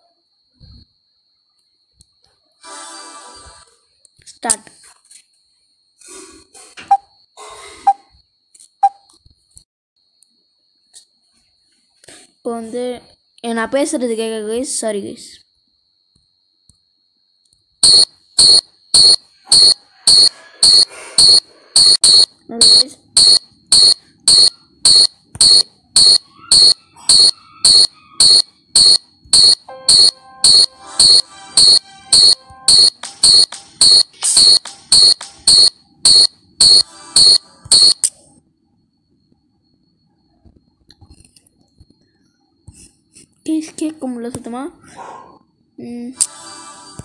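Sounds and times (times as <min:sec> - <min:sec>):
high-pitched electronic beep: 0:17.8 - 0:38.2
faint tones: 0:17.8 - 0:43.4.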